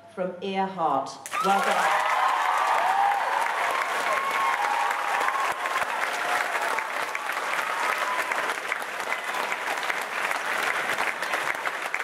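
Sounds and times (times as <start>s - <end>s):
audience applauding: 1.3s - 12.0s.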